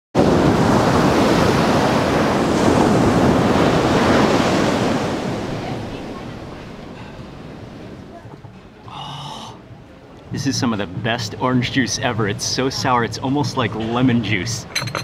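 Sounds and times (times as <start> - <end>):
waves breaking on a beach: 0.2 - 14.9.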